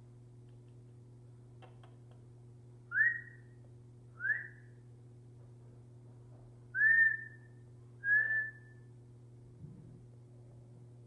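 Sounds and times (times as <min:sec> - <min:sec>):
rising whistles: 0:02.9 - 0:03.5, 0:04.2 - 0:04.7, 0:06.8 - 0:08.9.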